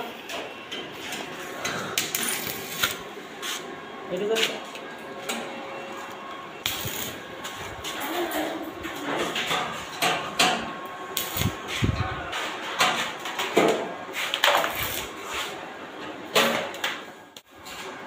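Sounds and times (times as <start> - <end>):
arc welding crackling: 1.1 - 4.8, 5.9 - 13.6, 14.2 - 15.6.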